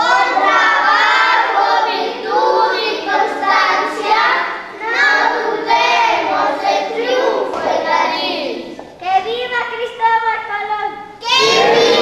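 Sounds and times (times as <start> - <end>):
children's choir singing: 0.0 - 8.9, 11.3 - 12.0.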